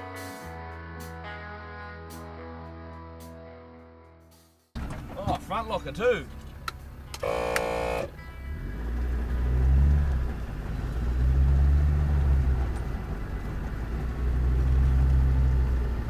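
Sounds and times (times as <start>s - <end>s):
off-road engine revving from cabin: 7.2s - 16.0s.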